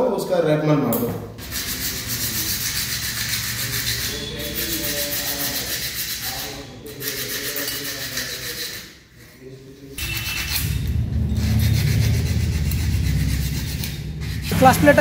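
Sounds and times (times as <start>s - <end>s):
metal plate scraping on sandpaper: 1.4s - 9.0s.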